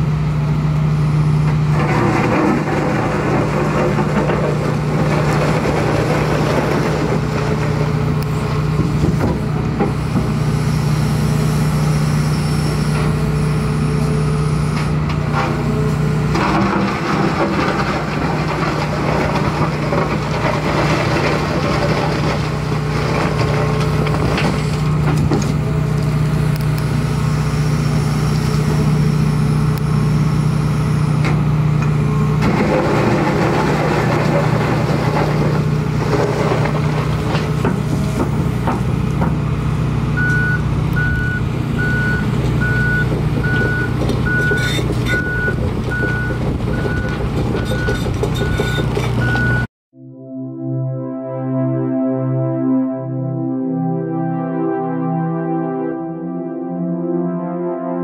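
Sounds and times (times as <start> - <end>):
excavator diesel engine running: 0.0 - 49.7
bucket crunching and scraping mud: 1.6 - 9.5, 15.3 - 26.2, 32.4 - 39.0.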